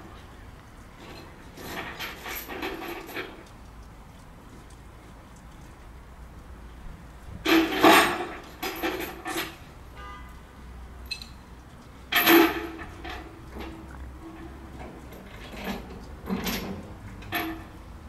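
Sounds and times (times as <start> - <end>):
metallic clanking and scraping: 1.0 - 3.5, 7.4 - 9.7, 11.1 - 18.0.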